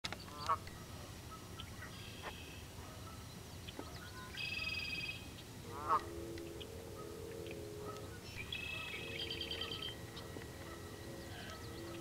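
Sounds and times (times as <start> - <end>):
birds giving buzzy calls: 0.1 - 12.0
goose honking: 5.6 - 12.0.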